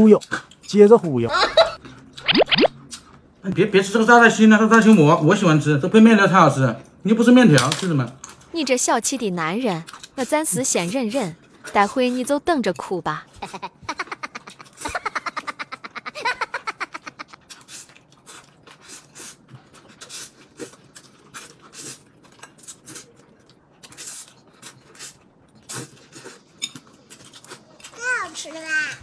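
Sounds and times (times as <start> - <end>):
noodles being slurped: 17.0 - 28.0
wet chewing and lip smacks: 17.2 - 27.9.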